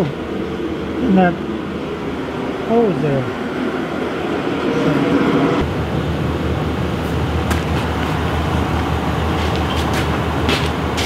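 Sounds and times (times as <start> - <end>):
pickup engine idling: 5.6 - 11.0.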